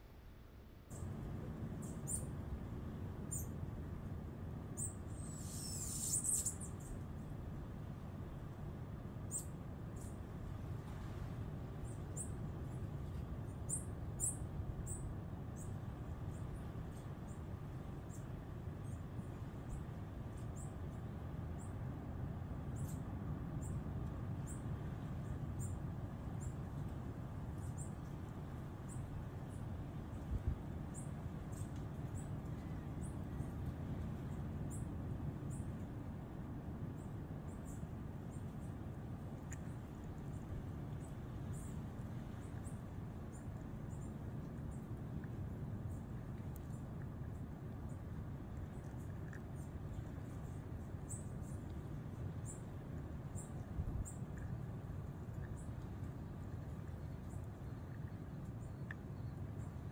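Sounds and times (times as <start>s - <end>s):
steady low rumble: 0.0s - 59.9s
small animals chirping: 4.8s - 6.8s.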